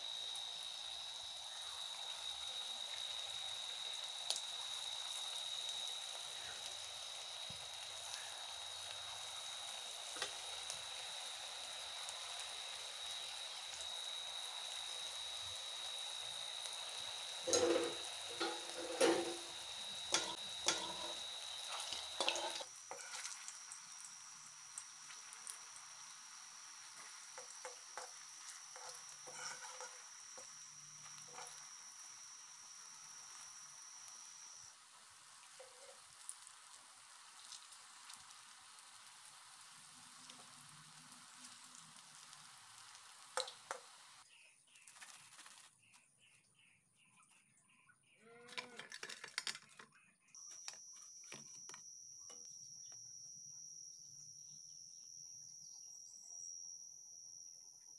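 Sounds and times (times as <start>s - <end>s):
food deep-frying in sizzling oil: 0.0s - 46.0s.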